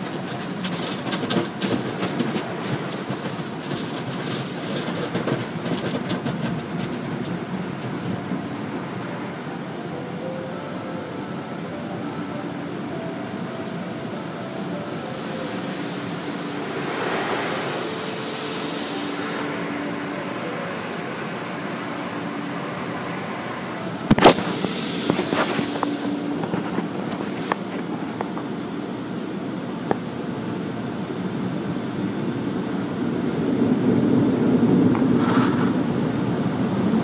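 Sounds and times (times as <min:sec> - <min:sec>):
car wash water and machinery: 0:00.0 - 0:37.0
spray hissing: 0:14.7 - 0:27.3.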